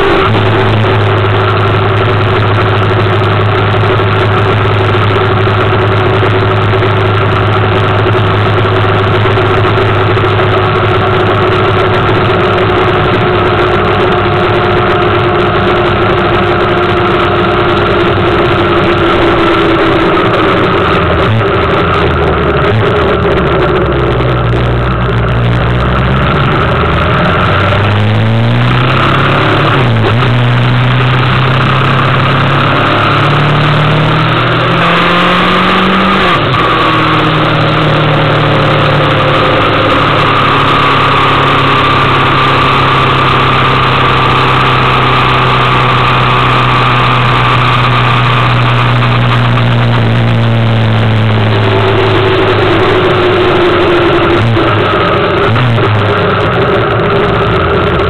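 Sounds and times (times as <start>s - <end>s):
motorcycle engine revving: 0.0s - 58.0s
wind and road noise: 0.0s - 58.0s.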